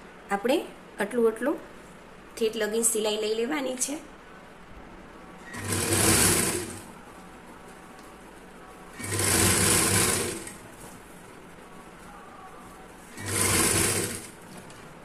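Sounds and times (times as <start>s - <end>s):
sewing machine stitching: 5.4s - 6.9s, 9.0s - 10.6s, 13.1s - 14.5s.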